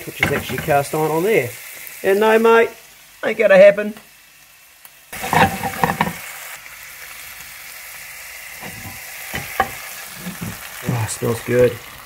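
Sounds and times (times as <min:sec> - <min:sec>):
lard sizzling in a frying pan: 0:00.0 - 0:12.0
cookware knocking and clattering: 0:00.1 - 0:00.8, 0:05.2 - 0:06.2, 0:08.6 - 0:10.6.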